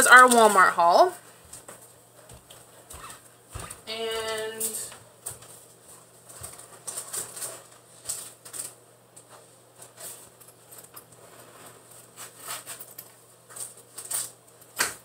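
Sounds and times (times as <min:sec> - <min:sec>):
packaging rustling: 0:06.2 - 0:08.8.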